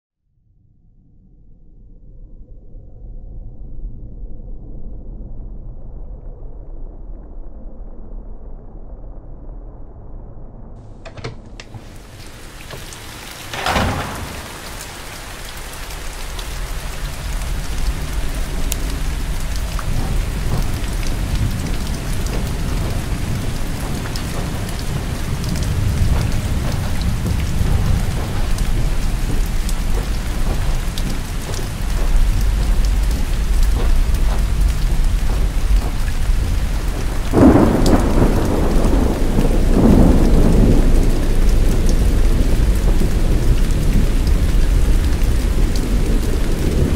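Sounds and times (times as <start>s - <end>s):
thunder rumbling: 10.8s - 46.9s
heavy rain on paving: 11.1s - 46.9s
loud thunderclaps: 11.5s - 46.9s.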